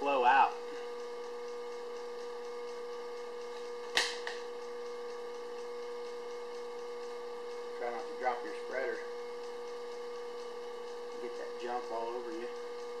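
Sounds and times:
steady tonal hum: 0:00.0 - 0:13.0
sharp click: 0:03.9 - 0:04.4.

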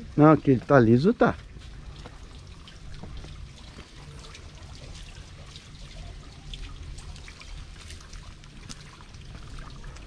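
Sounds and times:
water pouring onto waterwheel: 0:00.0 - 0:10.0.

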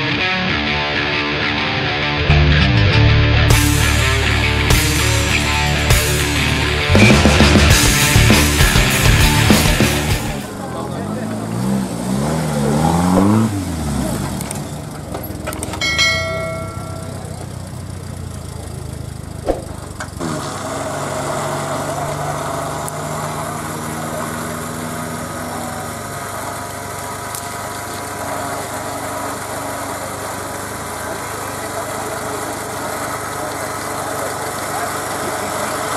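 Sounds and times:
car engine revving and idling: 0:02.2 - 0:35.9
short ringing tone: 0:15.8 - 0:17.4.

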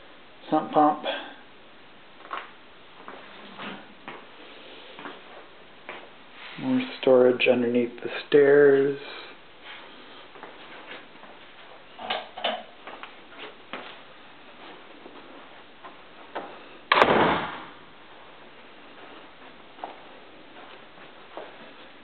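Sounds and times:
loud thump: 0:16.9 - 0:17.8.

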